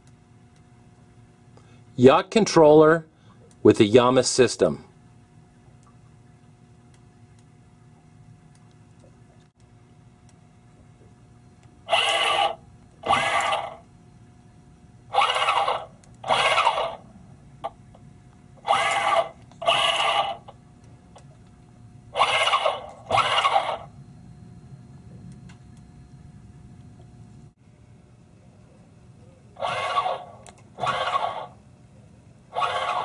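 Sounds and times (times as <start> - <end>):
motor whining: 11.9 - 13.8, 15.1 - 17.0, 18.6 - 20.6, 22.1 - 23.9, 29.6 - 31.6, 32.5 - 33.0.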